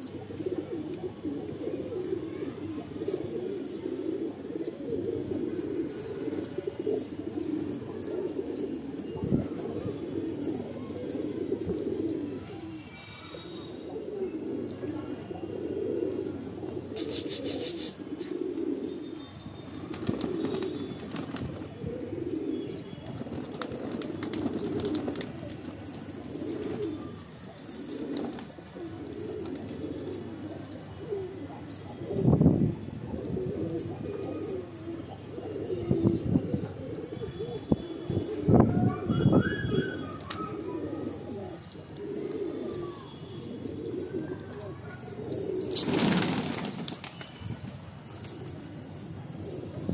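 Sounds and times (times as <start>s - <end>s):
pigeon cooing: 0.0s - 49.9s.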